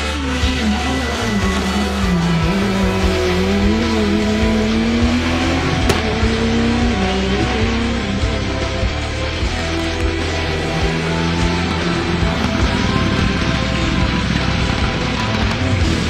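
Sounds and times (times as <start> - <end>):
background music: 0.0 - 16.0
rally car engine revving: 0.0 - 16.0.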